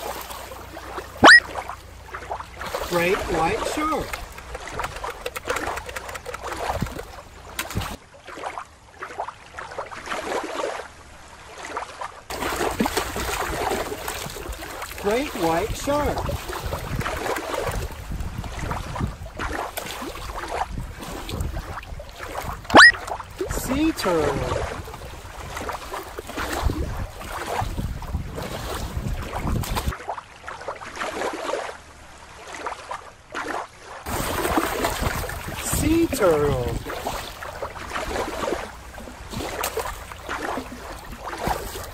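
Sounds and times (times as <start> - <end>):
crackly underwater bubbling: 0.0 - 10.4, 11.6 - 31.7, 32.4 - 41.9
stream water lapping and splashing: 0.0 - 41.9
wind buffeting microphone: 15.4 - 29.9, 34.1 - 41.9.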